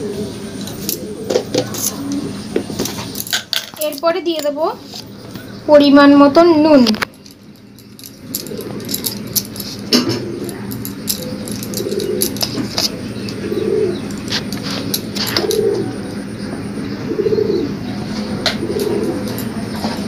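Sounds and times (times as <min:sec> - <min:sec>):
pigeon cooing: 0:00.0 - 0:03.2, 0:08.0 - 0:20.0
kitchen things clicking and knocking: 0:00.6 - 0:04.7, 0:06.9 - 0:15.8.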